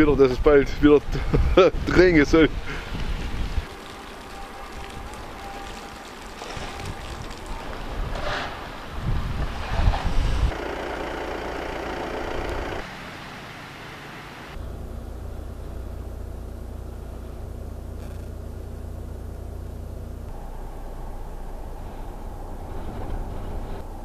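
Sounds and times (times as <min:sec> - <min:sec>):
gusty wind buffeting microphone: 0:00.0 - 0:03.8, 0:06.5 - 0:10.6, 0:20.3 - 0:24.0.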